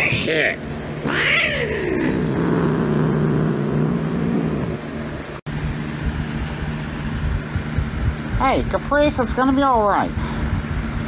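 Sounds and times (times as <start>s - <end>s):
cat yowling: 1.0s - 4.4s.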